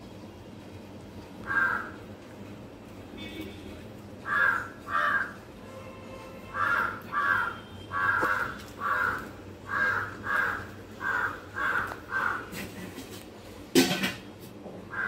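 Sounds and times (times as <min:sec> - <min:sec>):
crow cawing: 0:01.4 - 0:02.1, 0:04.2 - 0:05.5, 0:06.5 - 0:12.8.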